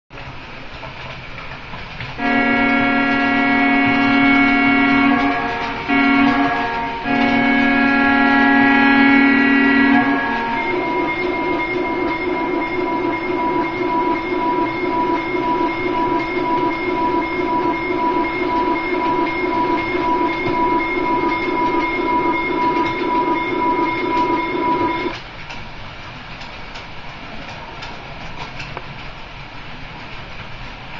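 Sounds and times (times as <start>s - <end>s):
model train running on track: 0.2s - 30.9s
synthesized diesel engine drone: 2.2s - 25.1s.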